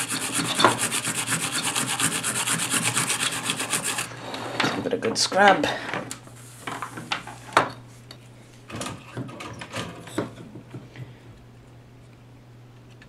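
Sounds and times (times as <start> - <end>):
tool scraping circuit board: 0.0 - 4.1.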